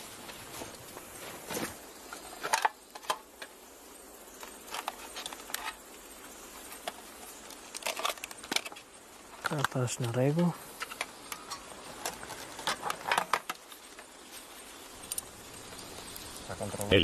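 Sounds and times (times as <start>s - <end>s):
backpacks set down on gravel: 0.3s - 3.2s.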